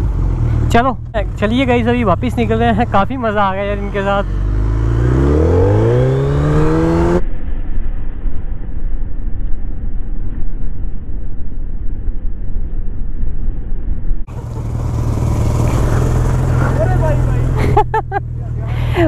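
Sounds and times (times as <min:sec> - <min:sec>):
motorcycle engine accelerating: 0:00.0 - 0:07.2, 0:14.3 - 0:19.0
wind rumble: 0:00.0 - 0:19.0.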